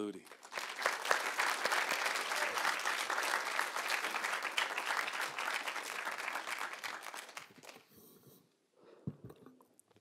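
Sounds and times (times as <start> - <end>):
audience applause: 0.2 - 7.9.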